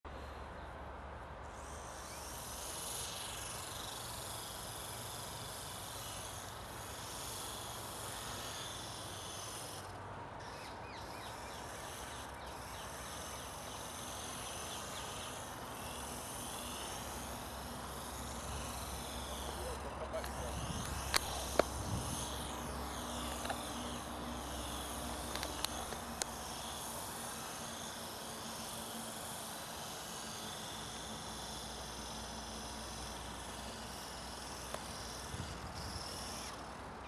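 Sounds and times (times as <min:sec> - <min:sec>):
rc helicopter motor whining: 0:00.1 - 0:37.0
outdoor hiss: 0:11.2 - 0:37.0.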